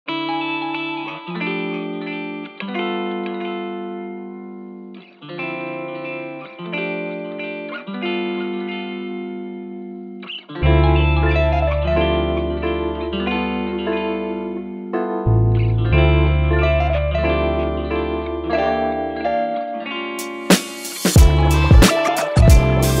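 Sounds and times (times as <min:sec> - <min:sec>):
held chords: 0:00.1 - 0:23.0
deep bass: 0:15.3 - 0:16.6, 0:21.2 - 0:21.8, 0:22.4 - 0:23.0.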